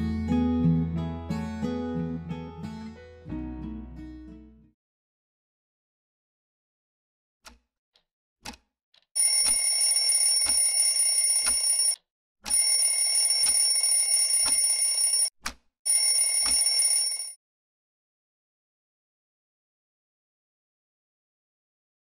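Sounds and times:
alarm clock ticking: 8.5s - 15.3s, 15.9s - 17.4s
alarm ringing: 9.2s - 15.3s, 15.9s - 17.4s.

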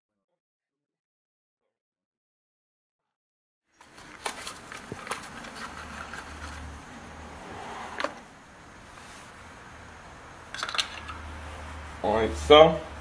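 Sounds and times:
handling of small engine parts: 3.8s - 6.9s, 10.5s - 11.2s.

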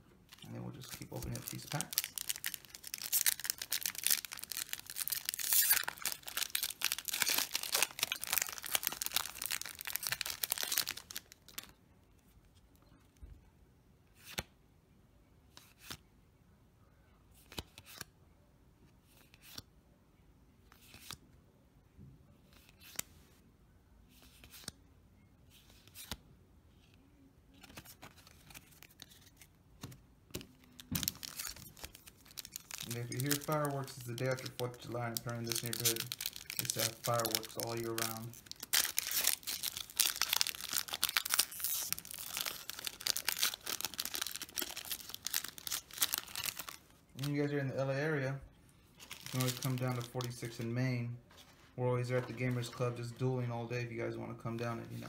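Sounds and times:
foil pack tearing and crinkling: 0.8s - 11.6s, 31.0s - 46.8s.

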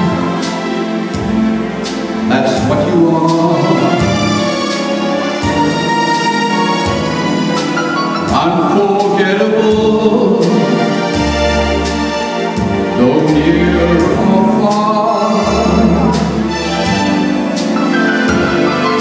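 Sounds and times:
bass notes: 0.0s - 19.0s
instrumental accompaniment: 0.0s - 19.0s
man singing into microphone: 2.3s - 4.2s, 8.3s - 11.0s, 12.9s - 16.5s.

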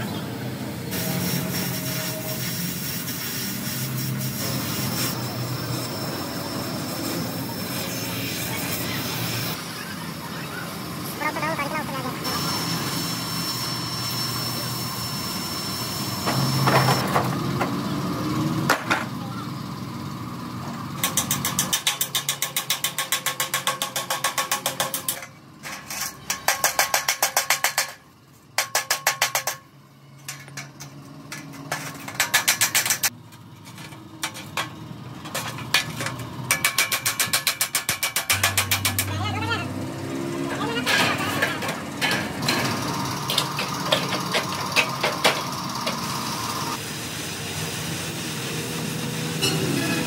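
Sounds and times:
power tool hammering metal: 12.2s - 17.8s, 21.0s - 28.0s, 28.6s - 33.2s, 34.2s - 46.8s, 49.0s - 50.0s.

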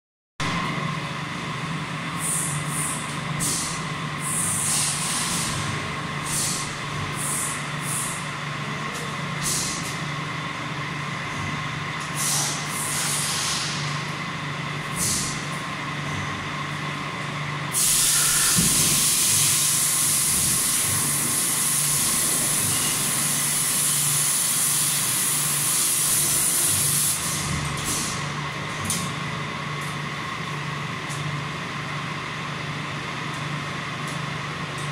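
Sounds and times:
mechanical hum: 0.4s - 34.9s
spray gun hissing: 17.8s - 20.8s.

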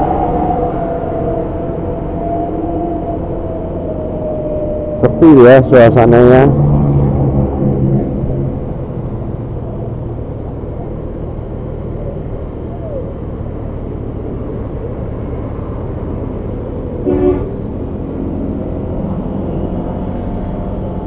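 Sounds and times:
motorcycle engine: 6.2s - 11.6s
vehicle horn toot: 17.0s - 17.6s.

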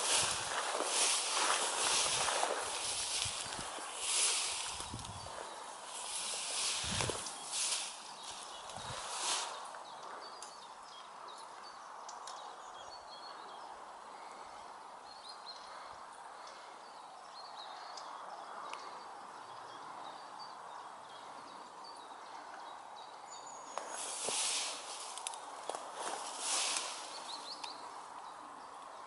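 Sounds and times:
loud rustle: 0.0s - 9.7s, 23.8s - 27.6s.

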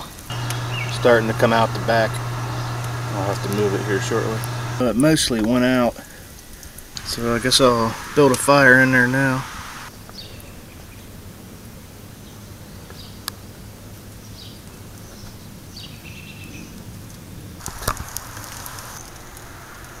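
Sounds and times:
low hum and hiss: 0.1s - 5.2s, 6.1s - 14.3s
clicks: 0.3s - 4.9s.

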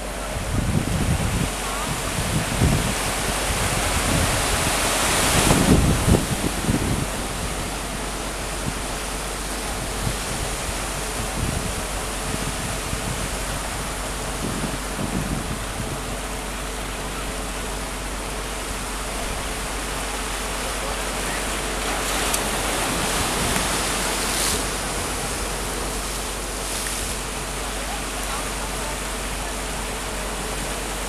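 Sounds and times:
water at the shore: 0.0s - 31.0s
wind: 0.0s - 31.0s.

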